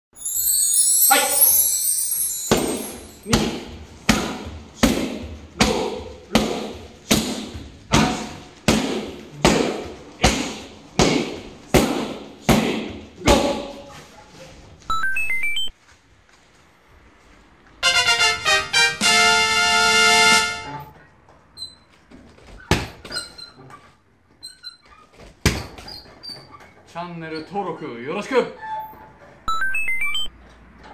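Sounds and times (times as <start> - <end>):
rising electronic chime: 0.2 - 3.3, 29.5 - 30.3
kicks smacking kick pads: 3.4 - 13.6.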